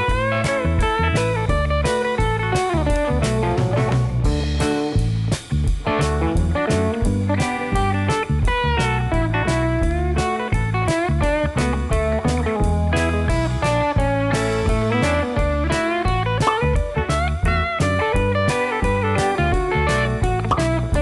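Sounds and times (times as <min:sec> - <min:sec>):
bass line: 0:00.0 - 0:21.0
guitar melody with bending notes: 0:00.0 - 0:21.0
steady beat: 0:16.4 - 0:17.3.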